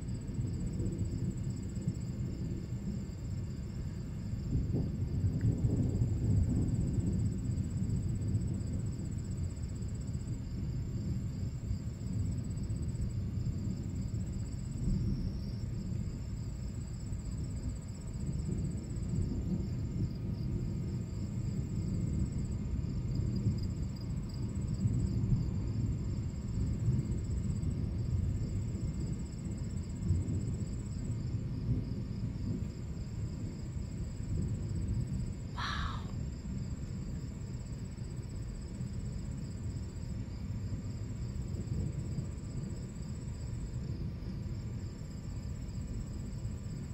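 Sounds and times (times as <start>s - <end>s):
crickets chirping: 0.0s - 46.9s
distant thunder rumbling: 17.4s - 36.6s.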